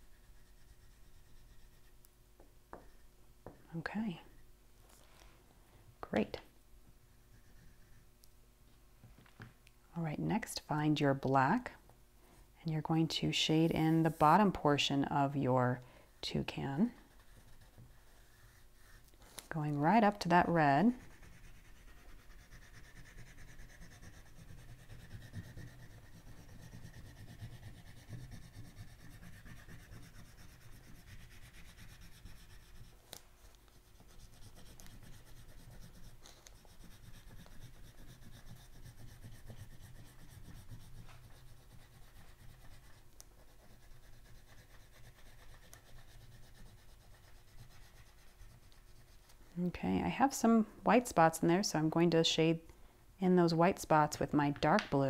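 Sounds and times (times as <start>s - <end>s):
oil pastel rubbing on paper: 0.0s - 2.0s, 7.1s - 8.1s, 16.6s - 49.4s.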